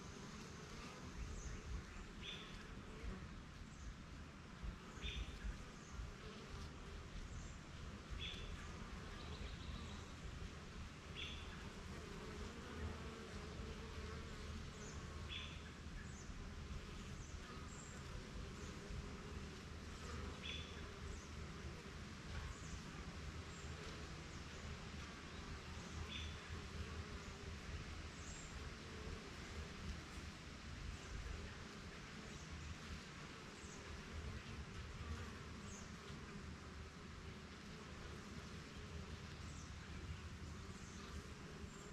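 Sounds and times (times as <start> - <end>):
honeybees buzzing: 0.0 - 3.6, 4.6 - 30.2.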